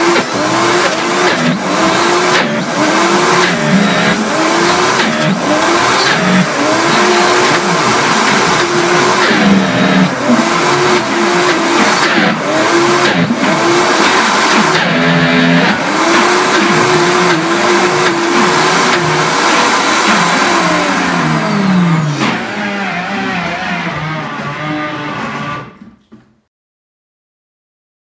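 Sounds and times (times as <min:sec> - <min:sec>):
blender motor running: 0:00.0 - 0:25.8.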